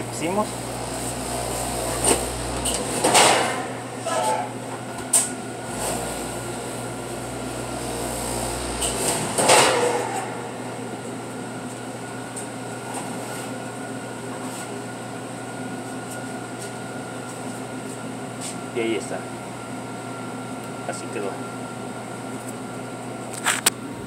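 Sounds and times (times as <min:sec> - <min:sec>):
oven humming: 0:00.0 - 0:24.0
oven door clattering open: 0:02.0 - 0:04.4, 0:08.8 - 0:10.4.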